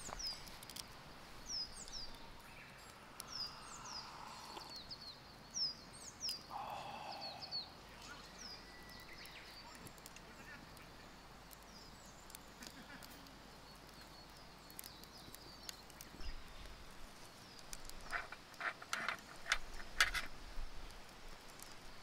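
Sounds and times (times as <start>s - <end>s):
faint clicks: 0.0s - 1.0s, 1.8s - 5.1s, 8.0s - 16.8s, 17.5s - 21.9s.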